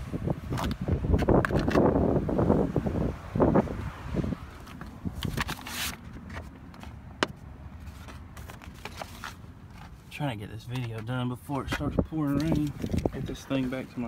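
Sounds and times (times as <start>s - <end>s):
low wind rumble: 0.0s - 9.8s, 11.6s - 14.0s
rustling handling noise: 4.5s - 14.0s.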